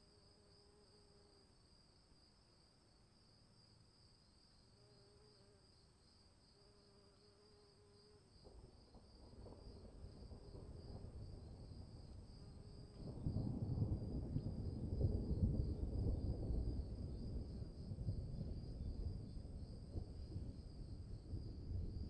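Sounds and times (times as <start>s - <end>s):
insects chirring: 0.0s - 22.0s
thunder rumbling: 9.2s - 22.0s.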